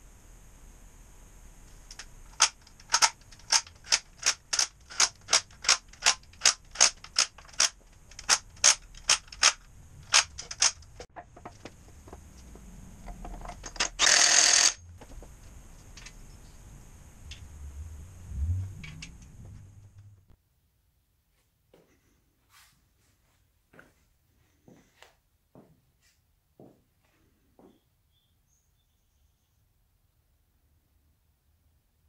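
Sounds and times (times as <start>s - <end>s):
sharp mechanical clicks: 1.9s - 11.1s, 13.0s - 14.8s.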